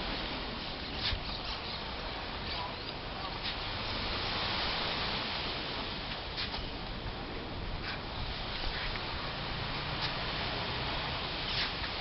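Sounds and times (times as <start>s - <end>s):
steady rushing noise: 0.0s - 12.0s
shovels digging into sand: 11.5s - 12.0s.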